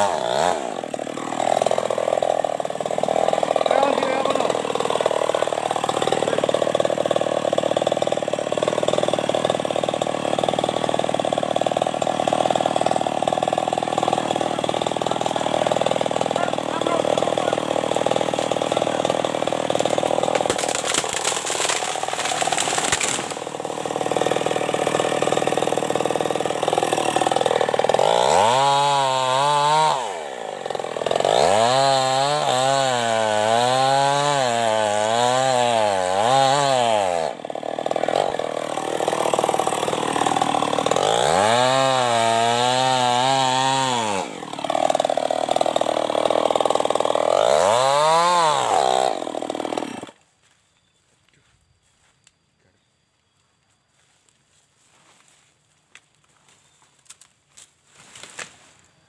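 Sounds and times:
chainsaw revving: 0.0 - 50.2
cracking burst: 19.8 - 23.5.

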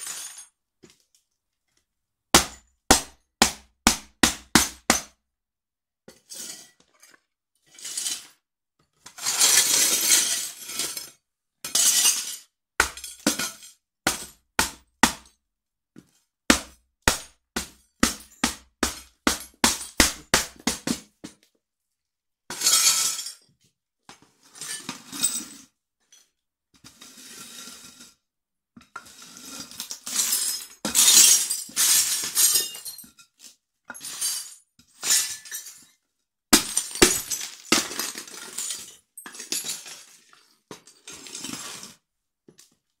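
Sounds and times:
crockery shattering and crunching: 29.8 - 33.1, 33.9 - 35.9, 36.6 - 41.6.

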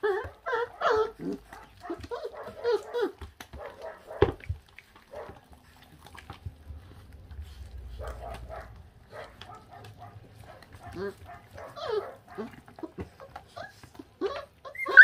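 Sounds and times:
puppy crying: 0.0 - 4.3, 8.0 - 15.0
puppies chewing and tearing meat: 0.0 - 15.0
puppies whining and squealing: 0.0 - 15.0.

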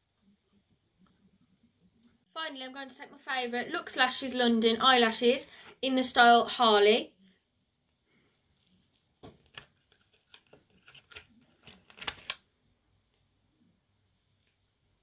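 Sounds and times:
plastic packaging crinkling: 8.6 - 12.4.

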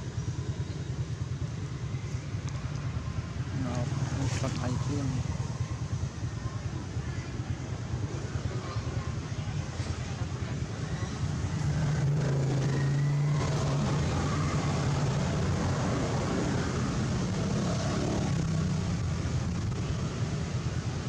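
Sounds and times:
motor engine droning: 8.8 - 21.0.

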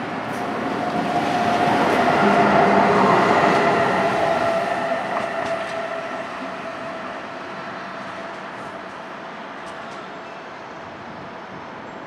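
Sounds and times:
locomotive whine: 0.0 - 9.6
train rolling noise: 0.0 - 12.0.

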